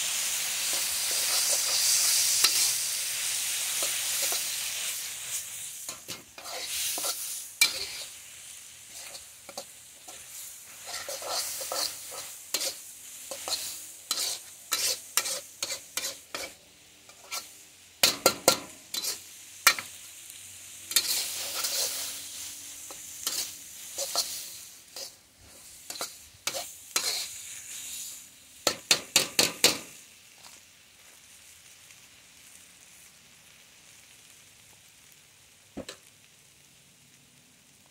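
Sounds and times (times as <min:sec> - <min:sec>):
food sizzling: 0:00.0 - 0:37.9
spatula scraping a steel wok: 0:00.1 - 0:20.0, 0:20.9 - 0:29.8.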